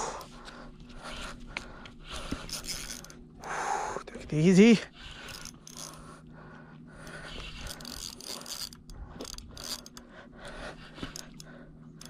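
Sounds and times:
fishing reel gears whirring: 0.0s - 12.0s.

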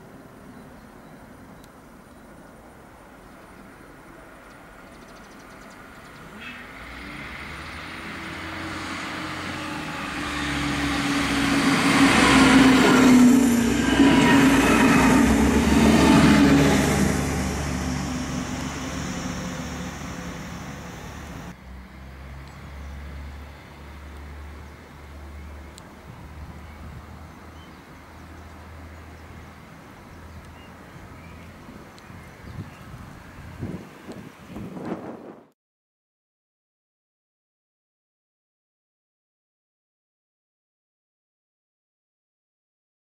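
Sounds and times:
diesel railcars passing: 0.0s - 35.2s
low diesel hum: 5.7s - 32.4s.

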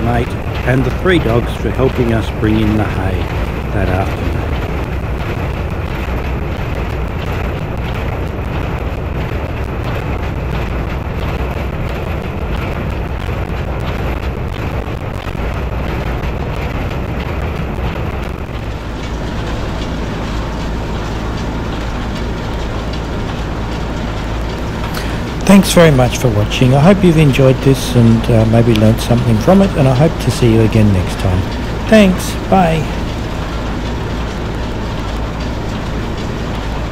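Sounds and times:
tractor engine running: 0.0s - 36.9s
hay baler working: 18.6s - 36.9s.

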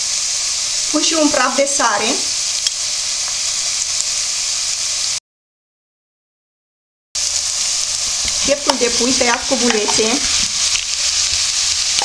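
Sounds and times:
onion sizzling in hot oil: 0.0s - 5.2s, 7.2s - 12.0s.

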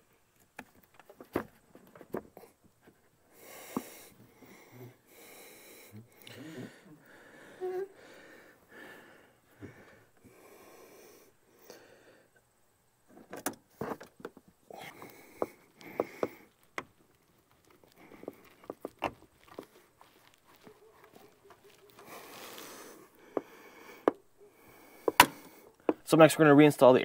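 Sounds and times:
person breathing heavily: 3.3s - 12.4s, 14.6s - 16.6s, 17.7s - 18.9s, 21.9s - 26.0s
parts clicking and knocking: 25.0s - 26.1s.

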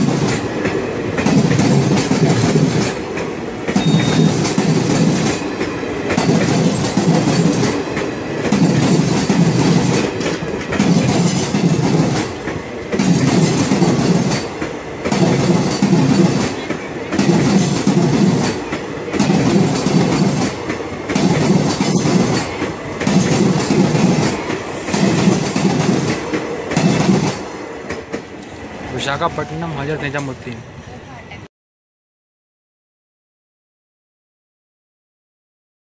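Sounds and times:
train wheels clattering over rail joints: 0.0s - 28.7s
train rumble: 0.0s - 31.5s.

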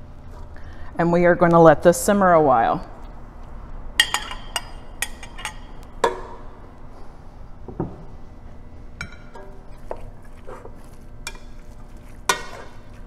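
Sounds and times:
metal spoon clinking on a pot: 4.0s - 6.2s.

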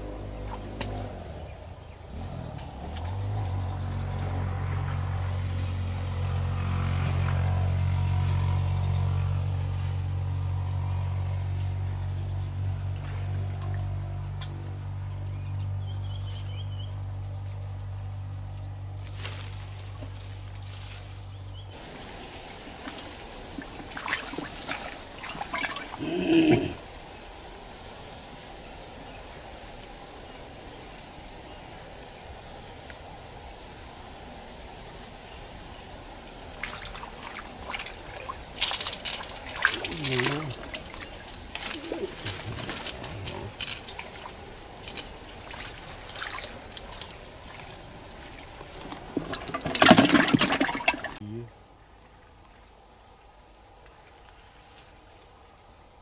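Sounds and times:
small engine running: 0.0s - 15.5s
water splashing and trickling: 12.3s - 15.0s, 19.1s - 27.8s, 36.1s - 51.3s.

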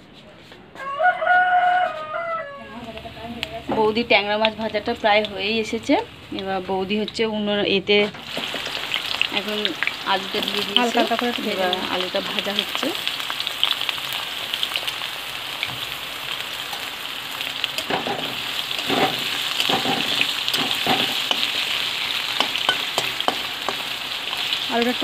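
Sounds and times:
potatoes frying in oil: 2.7s - 25.0s.

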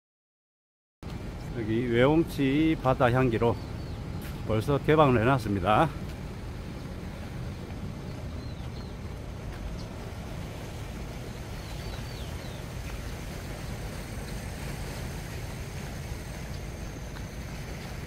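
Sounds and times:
wind on microphone: 1.1s - 18.0s
faint high bird chirps: 8.3s - 9.1s.

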